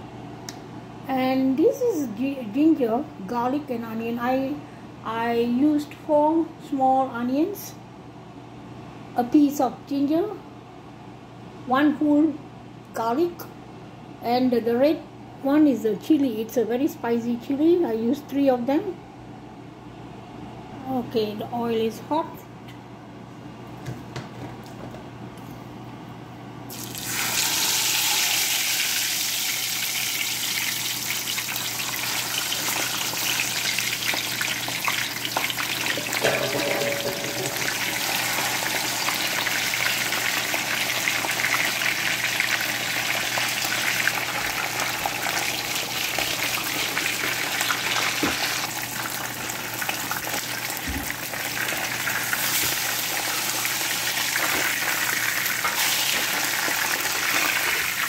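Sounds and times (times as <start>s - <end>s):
fish sizzling in frying pan: 26.7s - 58.0s.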